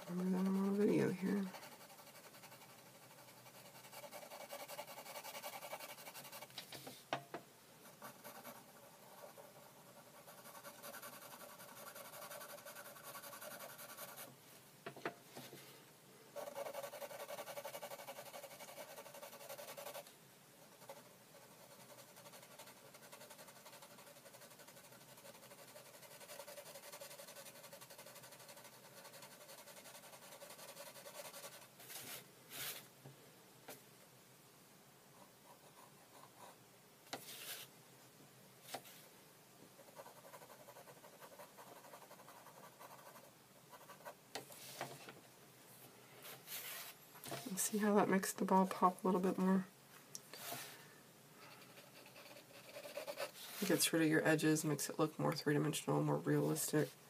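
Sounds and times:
pencil scratching on paper: 0.0 - 6.5, 7.8 - 14.3, 16.4 - 20.0, 20.6 - 32.8, 39.8 - 44.2, 51.6 - 54.0.

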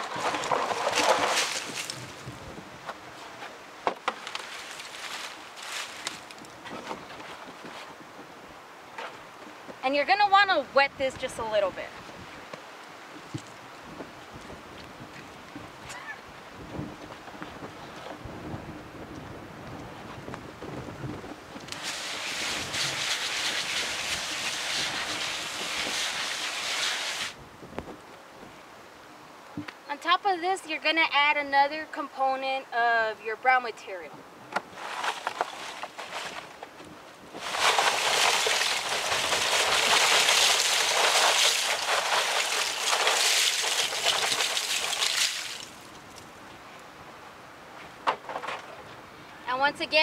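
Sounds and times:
compost crackling rustle: 0.0 - 9.8, 21.1 - 28.5, 34.5 - 46.9
water spraying onto leaves: 21.7 - 27.4, 37.4 - 45.9.

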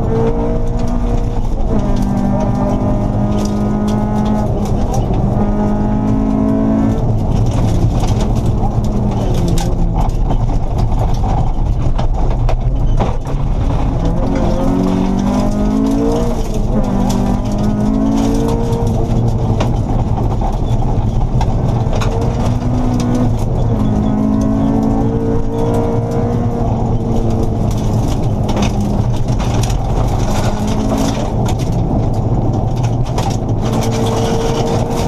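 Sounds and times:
car engine running hard: 0.0 - 35.0
steady road rumble: 0.0 - 35.0
gravel clattering against underbody: 0.2 - 25.2, 25.8 - 35.0.

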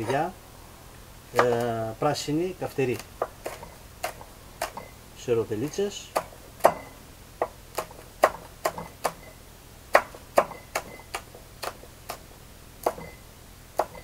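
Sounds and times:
knife chopping on wooden board: 1.4 - 1.8, 2.9 - 4.9, 5.6 - 9.3, 9.9 - 13.2, 13.8 - 14.0.

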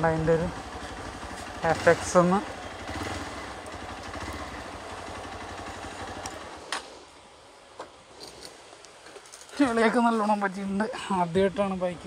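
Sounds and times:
motorcycle engine idling: 0.0 - 6.7.

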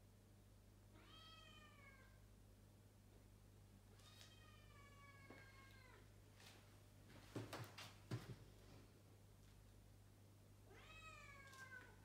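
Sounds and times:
faint distant cat meowing: 0.9 - 2.2, 4.0 - 6.1, 10.7 - 12.0.

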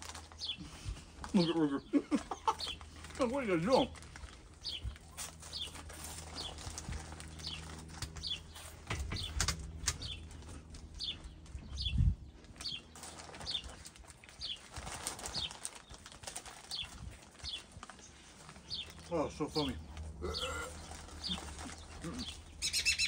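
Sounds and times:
small bird chirping: 20.3 - 23.0.

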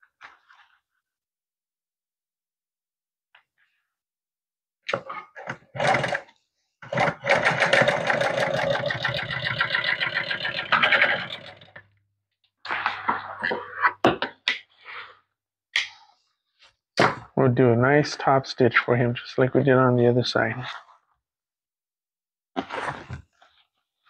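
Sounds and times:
sewing machine needle rattle: 7.0 - 11.8.

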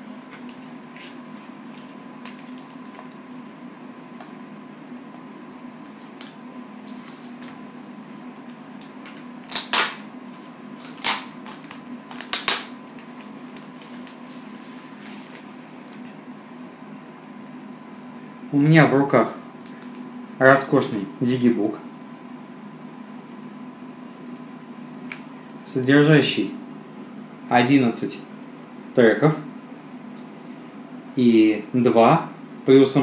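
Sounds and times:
steady low hum: 0.0 - 33.0
plastic wrap crinkling: 8.4 - 15.5.

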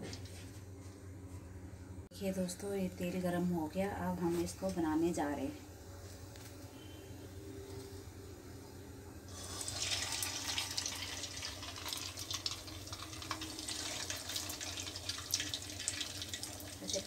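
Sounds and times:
food sizzling in hot oil: 9.3 - 17.0.

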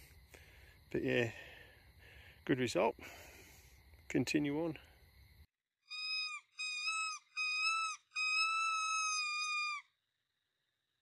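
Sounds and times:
high whistled squeals: 5.9 - 9.9.

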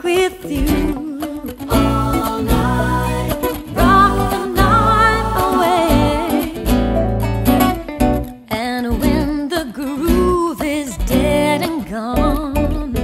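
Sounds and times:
lead and backing vocals: 0.0 - 7.0
acoustic guitar strumming: 0.3 - 9.4.

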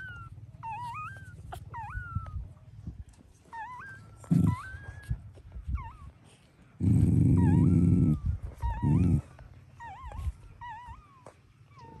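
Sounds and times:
puppies squeaking and whimpering: 0.0 - 12.0.

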